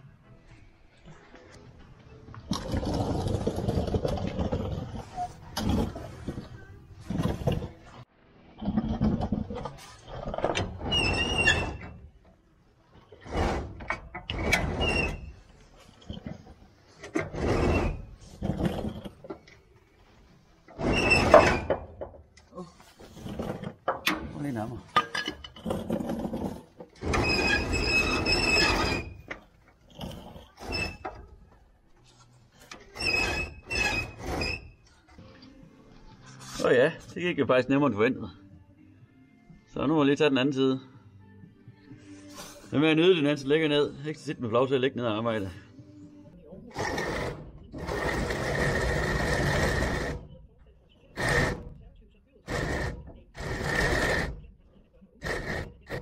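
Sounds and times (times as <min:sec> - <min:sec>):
metallic squeals: 0:09.8 - 0:12.2, 0:13.2 - 0:19.5, 0:20.7 - 0:22.0, 0:25.0 - 0:29.6, 0:30.3 - 0:31.4, 0:32.6 - 0:35.2.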